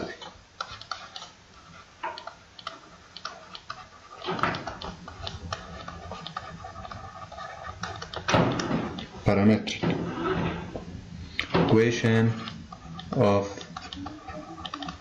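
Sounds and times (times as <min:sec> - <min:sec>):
low background noise: 0:00.0 - 0:15.0
stylus ticks and taps: 0:02.0 - 0:03.8, 0:04.4 - 0:07.0, 0:07.8 - 0:09.1, 0:12.4 - 0:15.0.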